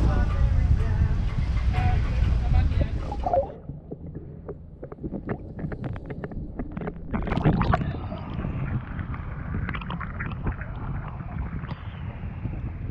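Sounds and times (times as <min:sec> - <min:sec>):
wind on microphone: 0:00.0 - 0:12.9
water lapping and splashing: 0:01.5 - 0:12.9
underwater clicks and bubbling: 0:03.1 - 0:12.9.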